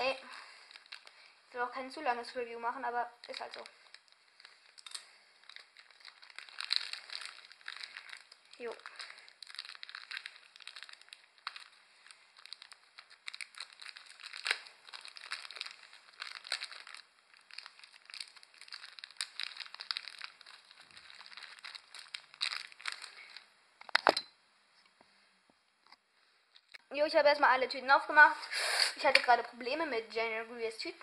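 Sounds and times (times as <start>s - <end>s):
plastic bags rustling and crackling: 0.0s - 24.2s.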